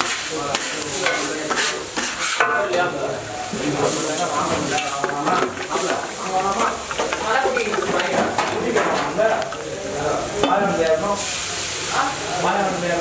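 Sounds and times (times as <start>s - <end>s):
metal spatula scraping: 0.0s - 2.5s, 3.8s - 9.8s
griddle sizzling: 0.0s - 13.0s.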